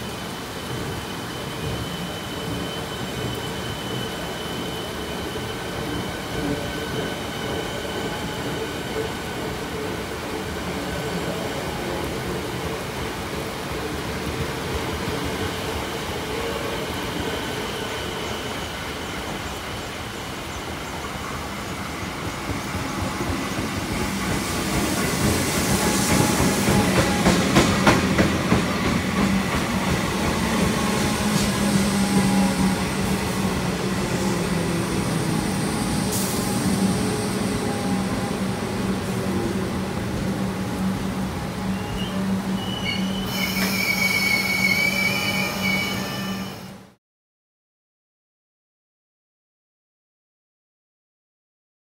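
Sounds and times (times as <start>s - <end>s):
train wheels rattling over rails: 22.0s - 37.7s.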